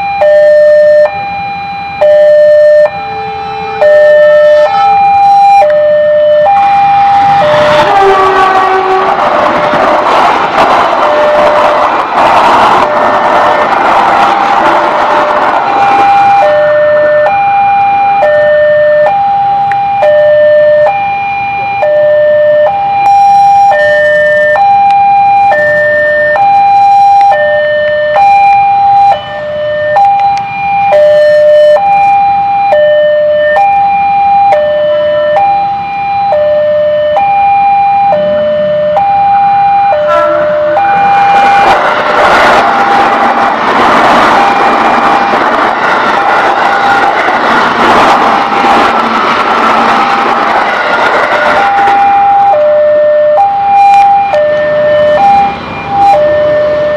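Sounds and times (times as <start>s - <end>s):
level crossing two-tone alarm: 0.0s - 8.8s, 10.6s - 12.0s, 15.0s - 43.4s, 50.7s - 56.9s
electric train passing loudly: 0.0s - 56.9s
passenger train passing: 0.0s - 56.9s.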